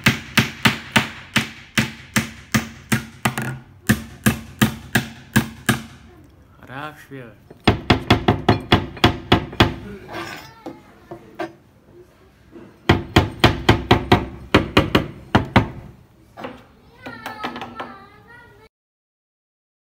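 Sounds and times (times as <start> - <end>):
hammer driving nails: 0.0 - 6.0, 7.6 - 9.8, 12.9 - 15.8.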